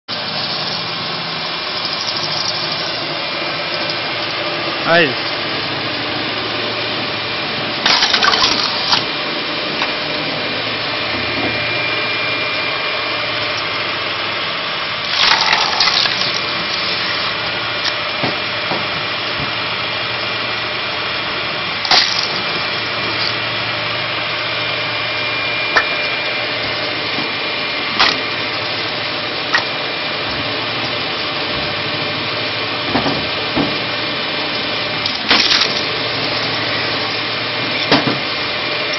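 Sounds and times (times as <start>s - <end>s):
log splitter motor humming: 0.1s - 38.9s
wood cracking and tearing: 15.1s - 17.1s.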